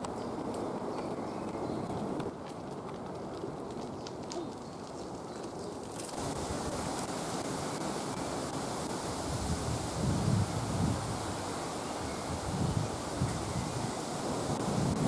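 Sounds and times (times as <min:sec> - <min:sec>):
rustling leaves: 0:00.0 - 0:15.0
wind in trees: 0:00.0 - 0:15.0
wind buffeting microphone: 0:06.2 - 0:15.0.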